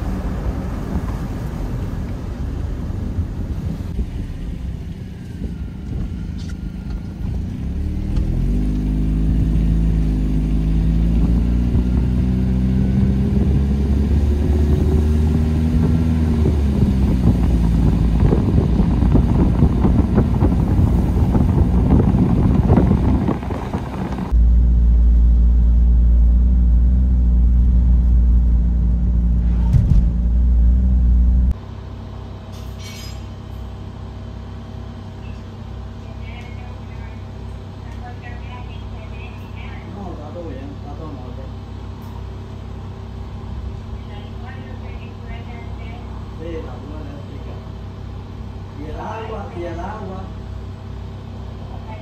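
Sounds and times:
car engine pulling away: 0.0s - 31.6s
road and wind noise: 0.0s - 52.0s.

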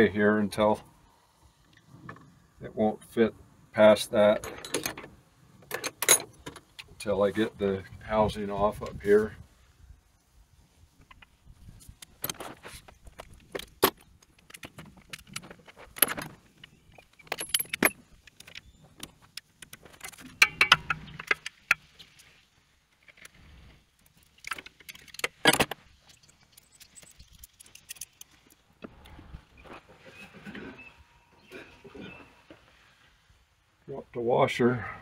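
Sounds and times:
wrench clinking on metal bolts: 4.3s - 5.1s, 17.2s - 18.0s, 20.1s - 21.7s.

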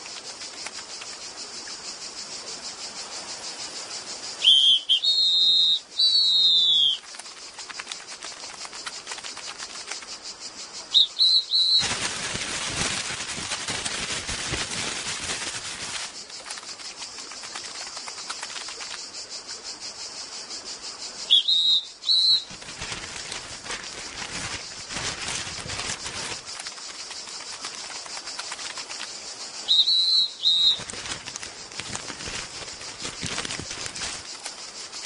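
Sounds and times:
insect chirring: 0.0s - 35.0s
short loud whistled calls: 4.4s - 7.0s, 10.9s - 12.0s, 21.3s - 22.6s, 29.6s - 31.0s
newspaper being crumpled: 11.6s - 16.6s, 22.5s - 28.8s, 30.4s - 34.4s.

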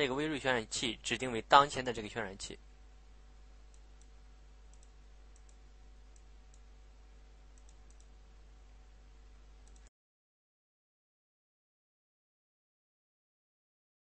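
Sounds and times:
low electrical hum: 0.0s - 9.9s
computer mouse clicks: 3.7s - 6.7s, 7.5s - 8.2s, 9.6s - 9.9s.

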